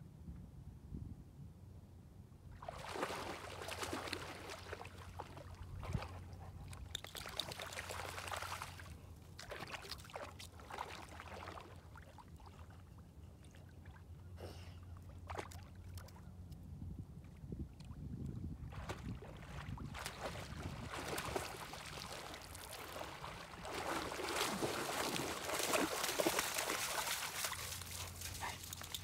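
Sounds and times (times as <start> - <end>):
dog splashing through water: 2.6 - 6.3, 7.0 - 11.7, 18.7 - 29.0.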